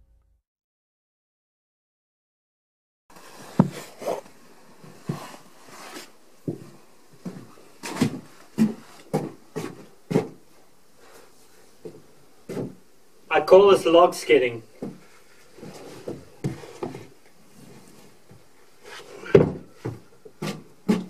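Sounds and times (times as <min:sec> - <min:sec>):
soft thumps and knocks: 0:03.5 - 0:04.0, 0:11.8 - 0:12.8, 0:19.2 - 0:21.0.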